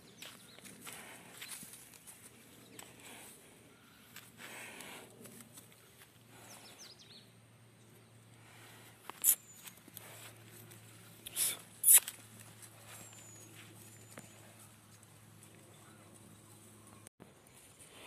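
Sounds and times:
bull grazing bursts: 11.2s - 12.2s.

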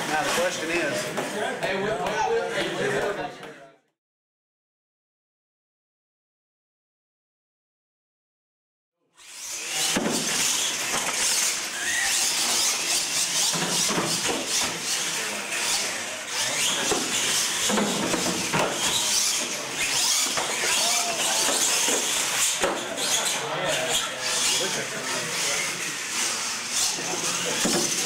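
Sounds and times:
electric motors whining: 9.2s - 28.0s
tyres scrubbing and squealing: 9.2s - 28.0s.

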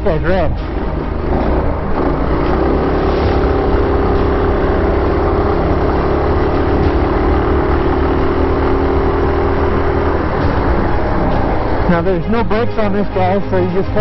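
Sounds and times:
mini bike engine running: 1.2s - 11.9s.

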